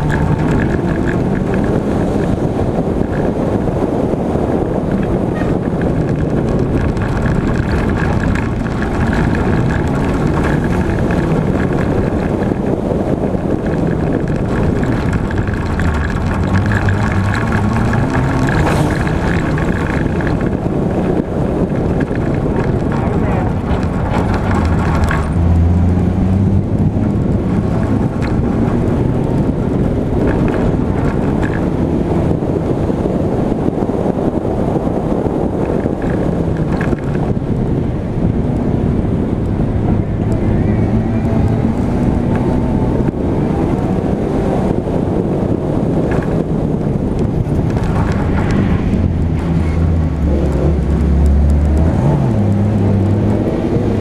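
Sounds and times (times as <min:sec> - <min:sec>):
race car engine revving: 0:00.0 - 0:33.1
dirt road noise: 0:00.0 - 0:54.0
wind: 0:00.0 - 0:54.0.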